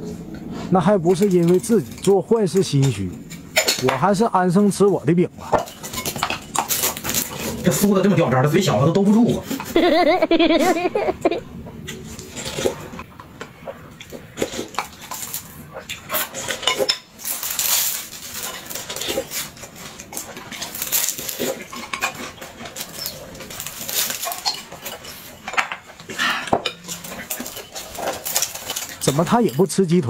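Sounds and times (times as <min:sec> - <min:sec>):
biting and chewing bread: 0:05.5 - 0:08.1, 0:11.8 - 0:29.2
chopsticks clinking on bowls: 0:14.6 - 0:29.8.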